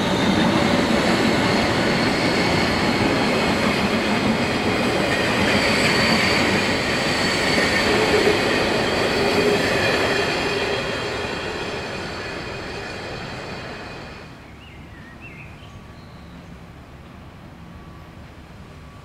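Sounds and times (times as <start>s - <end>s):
train coaches rolling on rails: 0.0s - 15.0s
thin wheel squeal: 5.1s - 14.2s.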